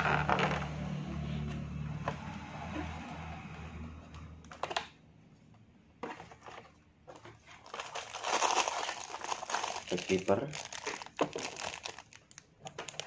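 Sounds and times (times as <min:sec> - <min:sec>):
packaging rustling and crinkling: 0:06.1 - 0:13.0.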